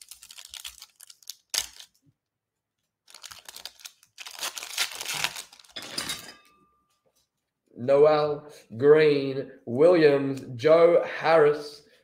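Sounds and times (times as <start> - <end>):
foil wrapper crinkling and tearing: 0.0 - 2.0, 3.0 - 5.8.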